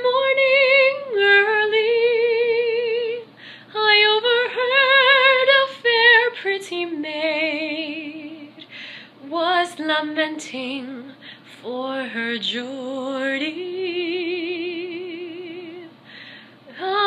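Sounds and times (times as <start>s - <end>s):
woman singing unaccompanied: 0.0s - 16.0s, 16.6s - 17.0s
singer breathing: 3.3s - 3.7s, 8.6s - 9.2s, 11.2s - 11.5s, 16.0s - 16.7s.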